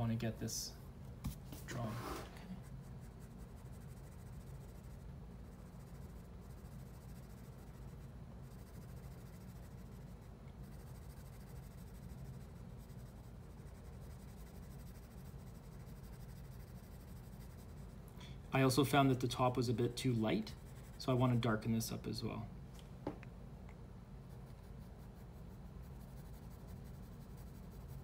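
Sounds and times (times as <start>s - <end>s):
pencil scratching on paper: 1.2s - 18.0s, 18.6s - 21.9s, 24.2s - 28.0s.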